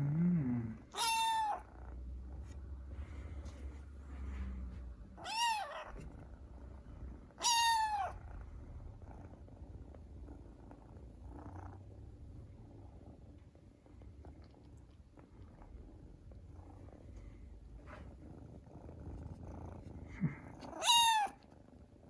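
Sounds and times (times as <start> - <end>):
kitten meowing: 0.9 - 1.6, 5.2 - 6.0, 7.4 - 8.2, 20.6 - 21.4.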